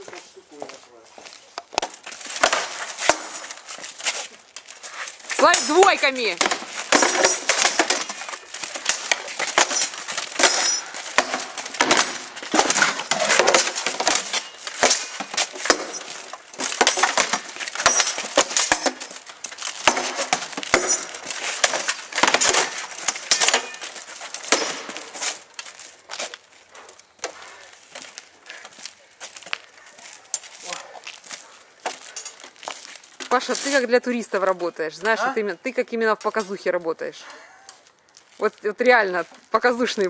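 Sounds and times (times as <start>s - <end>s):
armour clinking: 1.7s - 28.7s, 29.5s - 33.9s
swords clattering on shields: 5.3s - 25.4s.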